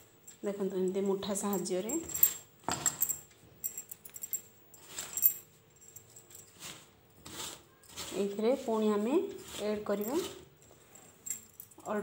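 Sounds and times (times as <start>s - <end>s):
bangles jingling: 0.9s - 6.6s, 9.9s - 12.0s
hand rubbing dough in a bowl: 6.5s - 11.0s.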